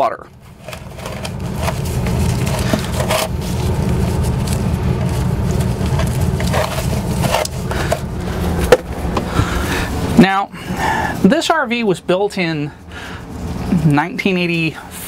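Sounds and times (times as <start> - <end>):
gloves rustling and rubbing: 0.3 - 15.0
crinkles and clicks: 0.5 - 8.1.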